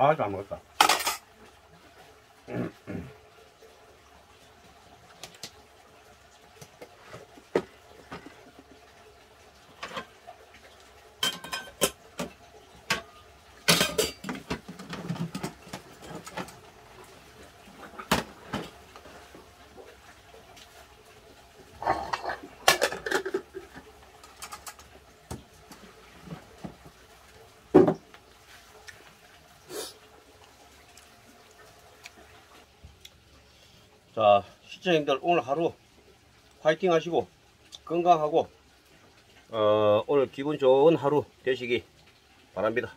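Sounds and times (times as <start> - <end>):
dishes clinking and clattering: 0.8 - 1.3, 9.8 - 10.2, 11.2 - 16.6, 21.8 - 26.4.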